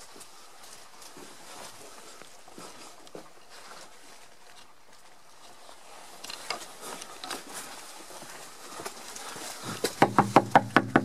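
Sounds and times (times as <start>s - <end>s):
footsteps on stone path: 0.0s - 10.5s
knuckles knocking on wooden door: 10.0s - 11.0s.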